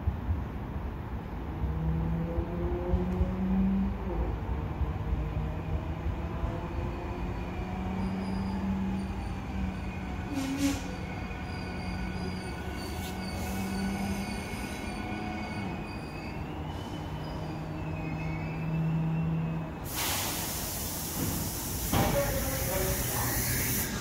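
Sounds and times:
train low hum: 0.0 - 24.0
train wheels squealing: 6.7 - 21.5.

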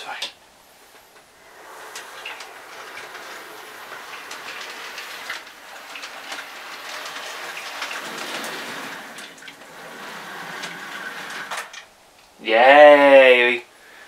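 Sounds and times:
small irregular clicks: 0.2 - 12.4.

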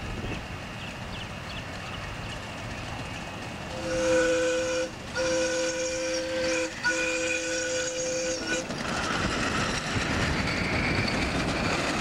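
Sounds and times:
steam whistle blasts: 3.7 - 8.7.

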